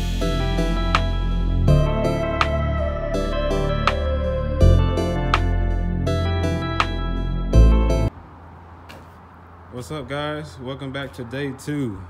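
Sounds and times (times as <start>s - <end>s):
sustained chords over deep bass: 0.0s - 8.1s.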